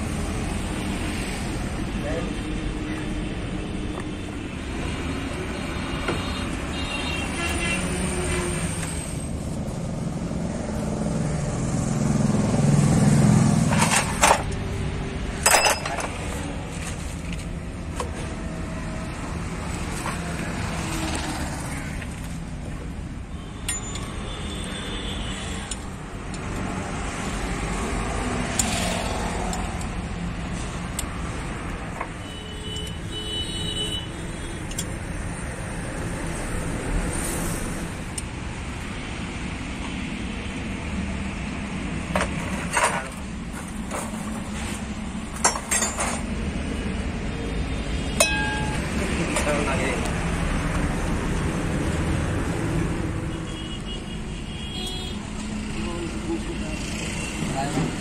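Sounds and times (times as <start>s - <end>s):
vehicle rumbling past: 9.3s - 14.0s.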